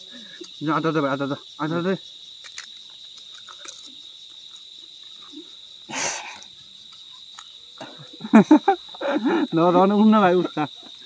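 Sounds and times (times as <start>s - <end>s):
crickets chirping: 0.0s - 11.0s
short hissing burst: 5.9s - 6.4s.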